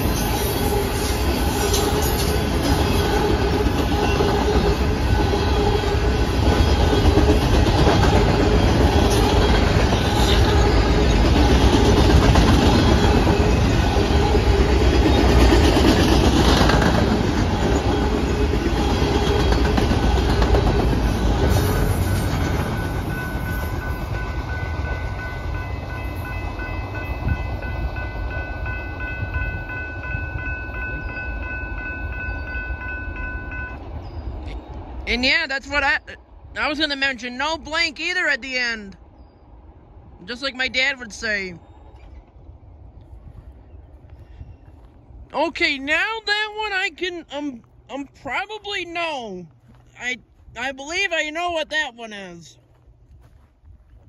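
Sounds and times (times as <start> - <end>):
freight train wheels rumbling: 0.0 - 54.0
crossing signal bell ringing: 21.6 - 34.5.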